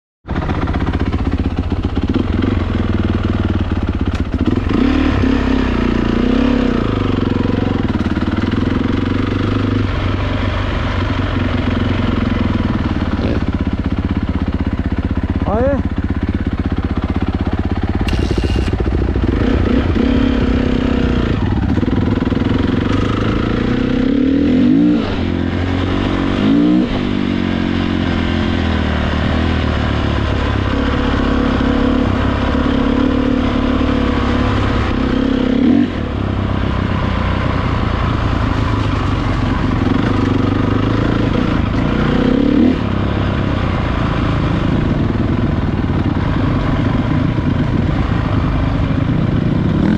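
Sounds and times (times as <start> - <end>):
dirt bike engines revving: 0.3 - 49.9.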